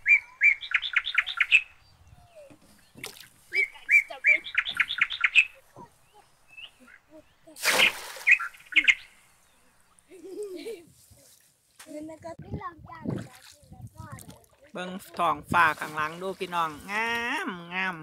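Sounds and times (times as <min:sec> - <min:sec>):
songbird singing: 0:00.0 - 0:10.5, 0:14.7 - 0:18.0
water splash: 0:03.0 - 0:03.4, 0:07.6 - 0:09.0, 0:13.0 - 0:17.0.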